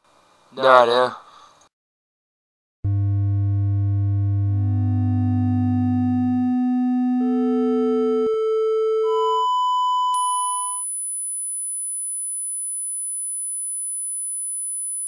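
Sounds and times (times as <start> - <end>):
high-pitched test tone: 2.9 - 13.5
electronic sine-wave tones rising: 2.9 - 15.0.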